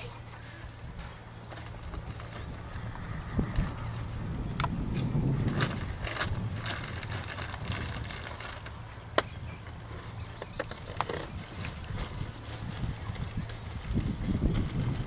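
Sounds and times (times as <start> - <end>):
hoofbeats on sand: 11.1 - 15.0.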